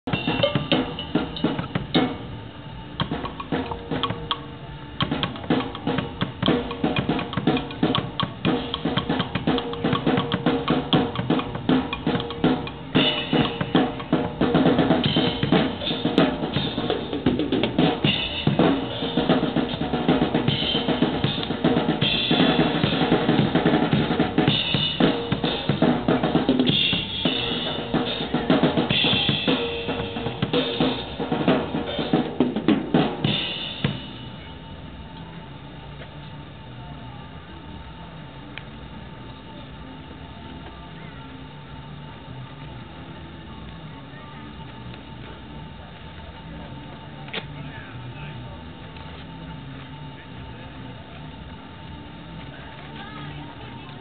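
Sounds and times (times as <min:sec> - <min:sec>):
drum kit playing fast: 0:00.0 - 0:36.0.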